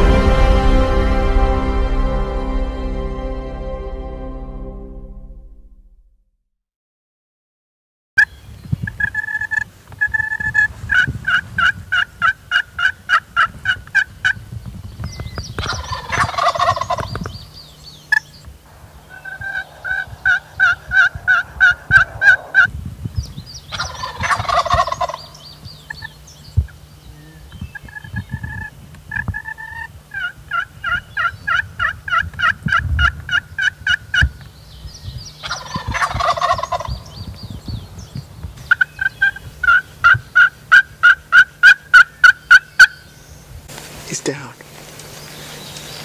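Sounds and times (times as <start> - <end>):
turkey gobble: 9.0 - 14.4, 15.6 - 17.3, 18.1 - 22.7, 23.7 - 26.2, 27.7 - 34.4, 35.4 - 37.2, 38.7 - 43.0
turkey yelps: 15.6 - 17.2, 19.0 - 22.7, 23.7 - 26.1, 28.6 - 34.3, 35.4 - 37.0, 38.7 - 43.0.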